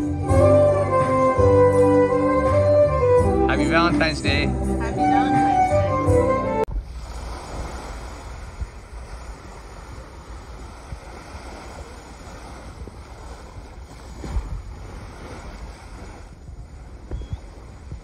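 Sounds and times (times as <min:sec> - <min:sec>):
sea waves washing at shore: 0:06.7 - 0:18.0
wind buffeting microphone: 0:06.7 - 0:18.0.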